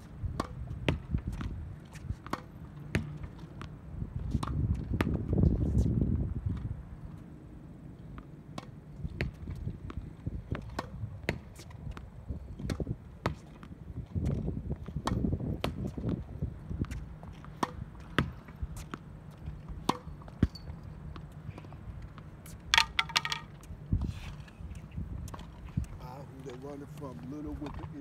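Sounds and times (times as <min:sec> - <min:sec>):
ball bouncing on hard court: 0:00.3 - 0:01.5, 0:02.2 - 0:03.7, 0:08.2 - 0:11.7, 0:15.0 - 0:16.2, 0:16.8 - 0:19.0, 0:22.2 - 0:23.5
tennis racket hitting ball: 0:00.4 - 0:01.4, 0:02.0 - 0:03.7, 0:12.6 - 0:13.7, 0:16.9 - 0:19.1, 0:19.8 - 0:20.6, 0:22.7 - 0:23.6
ball striking backboard: 0:22.7 - 0:23.5.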